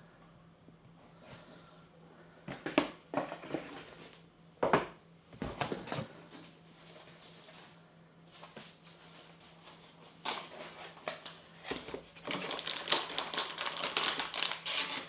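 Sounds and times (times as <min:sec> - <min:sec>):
packaging knocks and rustles: 0:10.2 - 0:15.0.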